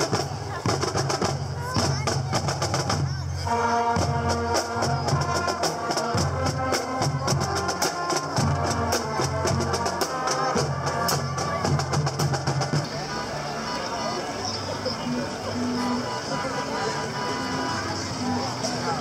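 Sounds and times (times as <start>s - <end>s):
snare and bass drums: 0.0s - 13.1s
higher instruments playing tune: 0.0s - 19.0s.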